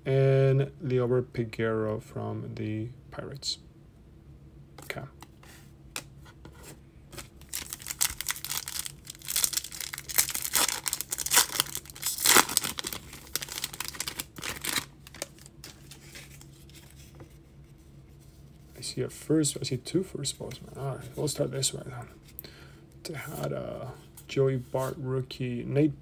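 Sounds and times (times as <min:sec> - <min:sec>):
foil wrapper tearing and crinkling: 0:07.4 - 0:16.5.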